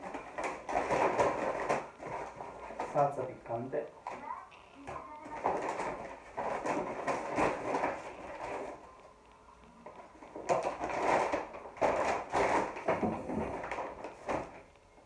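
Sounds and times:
paper bags rustling and crinkling: 0.0 - 9.2, 9.8 - 14.7.

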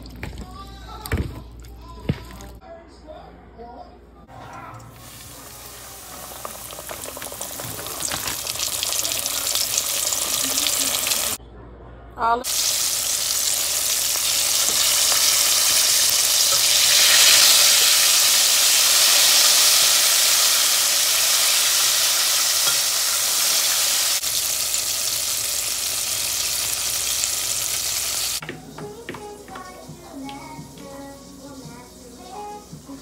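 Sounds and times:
chicken deep-frying in oil: 4.5 - 11.4, 12.4 - 28.4.

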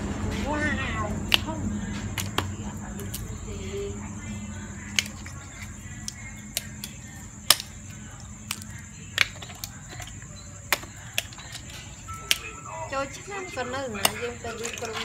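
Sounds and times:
low steady hum: 0.0 - 15.0
mussel shells clicking: 2.2 - 3.4, 4.8 - 12.6, 13.9 - 15.0.

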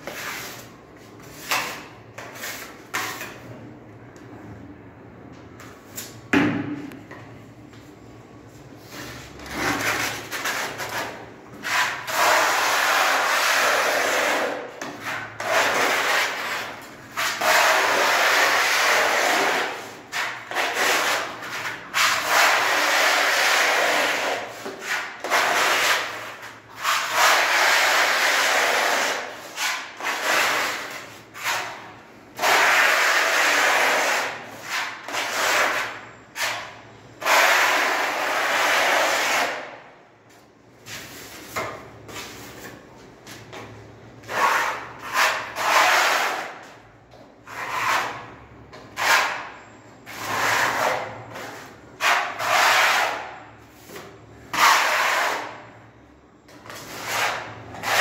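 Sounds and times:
putty blade scraping on wall: 8.9 - 39.7, 44.2 - 55.7, 56.5 - 58.0.

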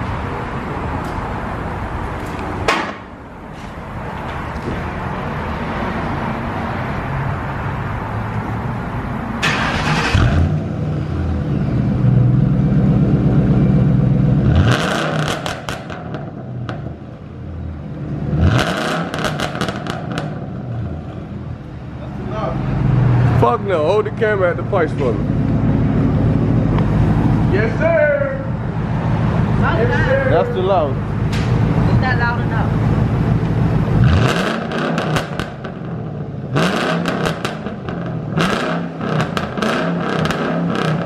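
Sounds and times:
car engine revving: 9.4 - 30.2, 30.8 - 41.0
exhaust cracks: 12.7 - 17.2, 18.3 - 21.2, 33.2 - 41.0.

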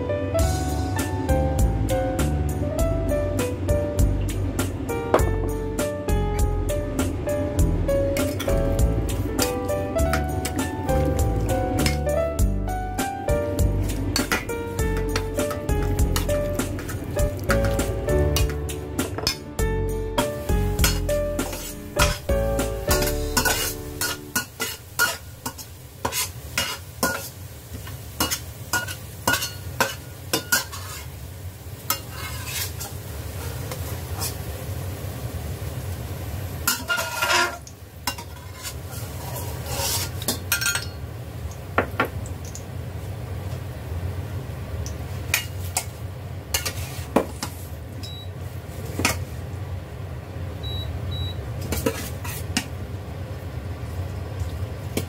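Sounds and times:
garlic sizzling in oil: 8.1 - 49.6, 50.6 - 55.0
metal spoon scraping a pot: 20.8 - 22.3, 22.9 - 27.3, 28.2 - 31.1, 31.9 - 33.6, 36.7 - 41.0, 46.5 - 47.1.

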